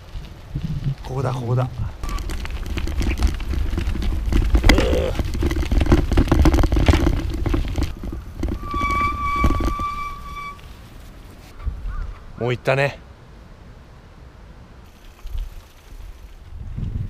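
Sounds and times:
wind buffeting microphone: 0.0 - 10.6, 15.3 - 17.0
tyres crunching on gravel: 0.0 - 11.6.

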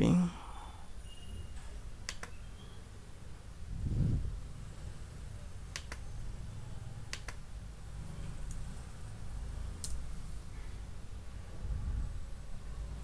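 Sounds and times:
computer mouse clicks: 2.0 - 2.4, 5.7 - 6.1, 7.1 - 7.4, 9.8 - 10.0.

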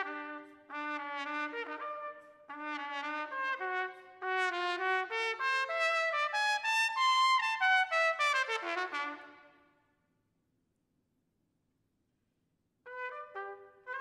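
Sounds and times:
trumpet playing detached notes: 0.0 - 9.5, 12.9 - 14.0.

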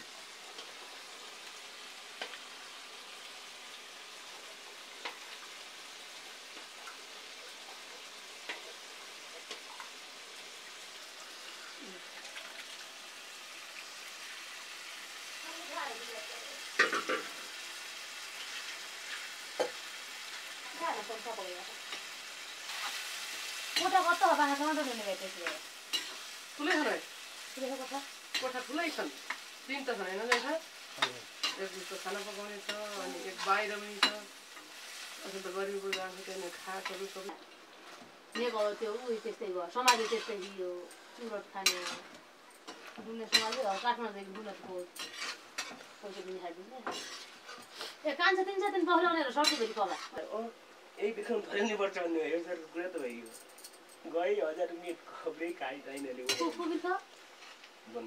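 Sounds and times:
meat sizzling in a wok: 0.0 - 58.0
metal ladle scraping a pan: 38.4 - 40.6, 45.0 - 45.8, 46.8 - 48.0, 49.4 - 50.2.

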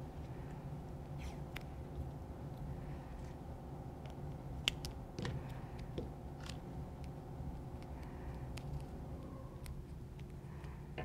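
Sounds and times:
steady low hum: 0.0 - 11.0
electrical tape clicks and crackles: 3.9 - 11.0.

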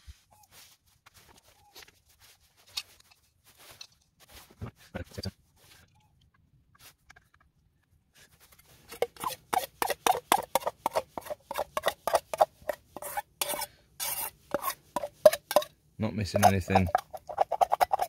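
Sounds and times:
spoon scraping metal saucepan: 8.9 - 18.0.

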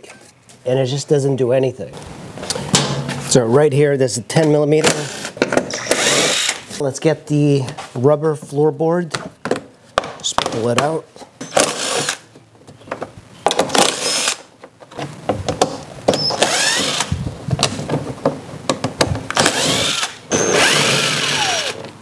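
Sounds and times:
impact driver running: 19.4 - 21.8.

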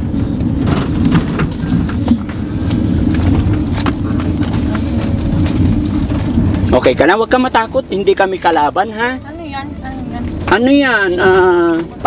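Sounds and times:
van engine and road rumble: 0.0 - 12.0
light rattles and knocks: 0.2 - 7.0.

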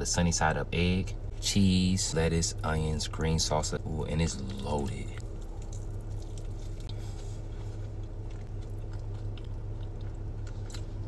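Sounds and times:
car cabin hum: 0.0 - 9.4
person chewing wet crunchy food: 3.8 - 11.0.

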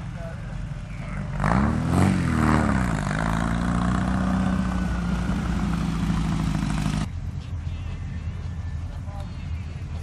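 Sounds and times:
car engine pulling away: 1.1 - 7.1.

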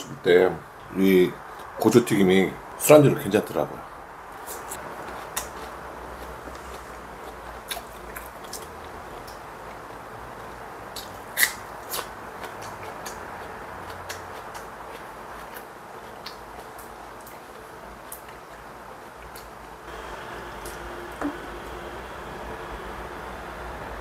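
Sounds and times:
electric fan whirring: 0.0 - 24.0
chewing crunchy food: 4.4 - 19.6.

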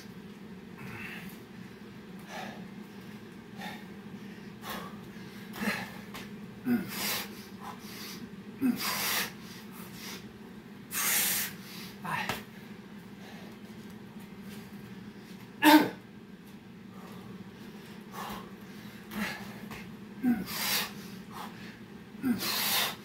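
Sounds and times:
man exhaling forcefully: 22.2 - 23.0.

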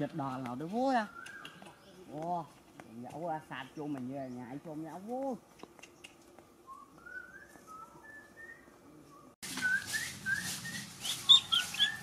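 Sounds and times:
bird chirps: 1.0 - 2.2, 5.8 - 12.0
faint whistling: 6.7 - 12.0.

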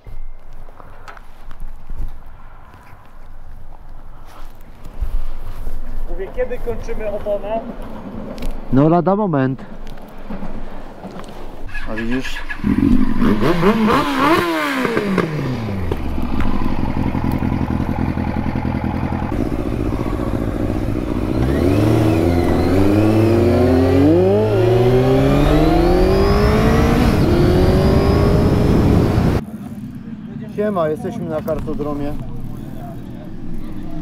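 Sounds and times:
motorcycle engine idling and revving: 9.8 - 34.0.

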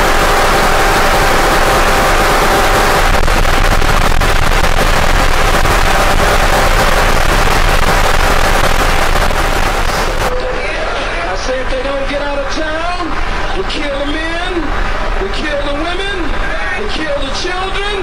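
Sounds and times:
faint steady tones: 0.0 - 10.3
harsh noise music: 0.0 - 10.3.

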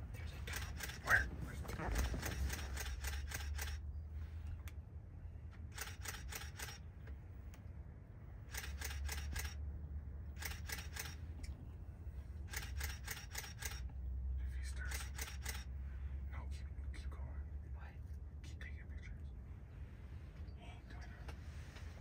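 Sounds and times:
turkey rattling clicks: 1.8 - 3.8, 10.4 - 11.2.

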